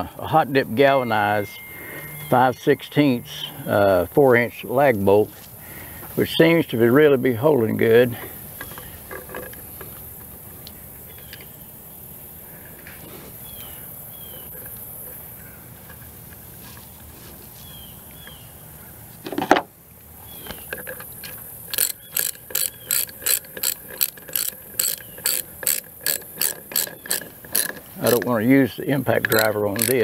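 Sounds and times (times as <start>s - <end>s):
ratchet wrench clicking: 21.1s - 28.3s, 29.2s - 30.0s.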